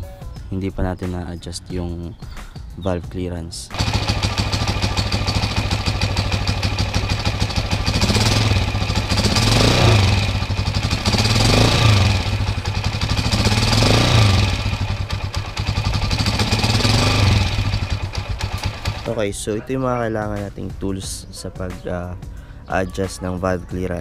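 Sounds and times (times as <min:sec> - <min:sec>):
motorcycle engine idling and revving: 0:03.7 - 0:22.7.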